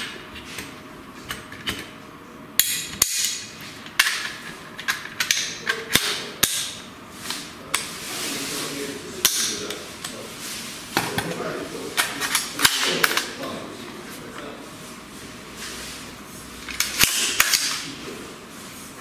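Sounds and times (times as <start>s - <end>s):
sliding and rustling of handling: 7.1s - 19.0s.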